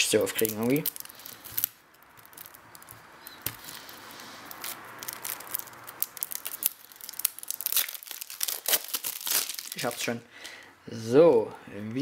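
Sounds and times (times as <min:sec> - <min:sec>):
small plastic clicks and crackles: 0:00.3 - 0:09.8
fingernails scratching plastic wrap: 0:00.4 - 0:10.0.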